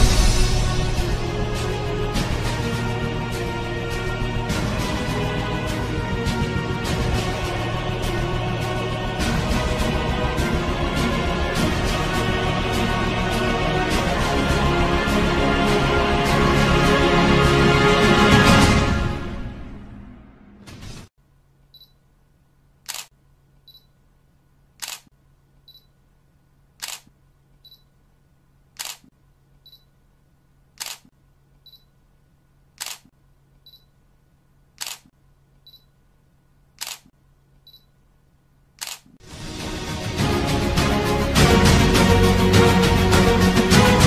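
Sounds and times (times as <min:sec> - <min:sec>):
music: 0:00.0 - 0:20.2, 0:39.2 - 0:44.0
camera shutter clicking: 0:22.9 - 0:23.1, 0:24.8 - 0:25.1, 0:26.8 - 0:27.1, 0:28.8 - 0:29.1, 0:30.8 - 0:31.1, 0:32.8 - 0:33.1, 0:34.8 - 0:35.1, 0:36.8 - 0:37.1, 0:38.8 - 0:39.1.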